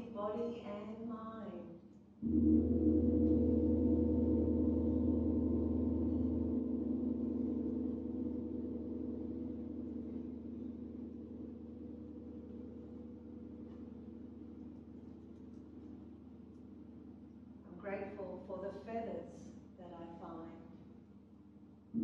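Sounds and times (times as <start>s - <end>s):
large gong ringing: 2.2s - 14.6s.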